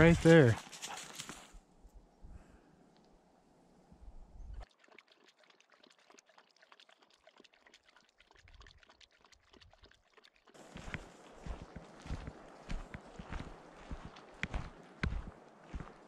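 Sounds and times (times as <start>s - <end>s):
dog lapping water: 4.6s - 11.7s
water trickling: 4.6s - 16.0s.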